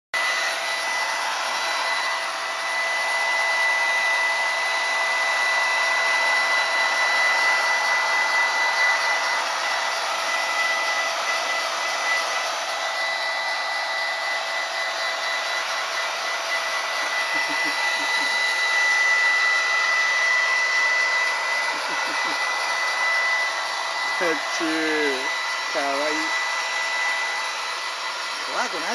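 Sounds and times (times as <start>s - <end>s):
hair dryer running: 0.2s - 28.9s.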